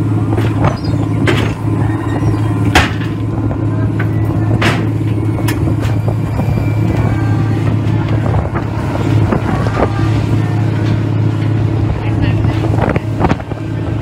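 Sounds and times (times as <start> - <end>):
engine low hum: 0.0 - 14.0
metal knocks and clanks: 0.3 - 3.4.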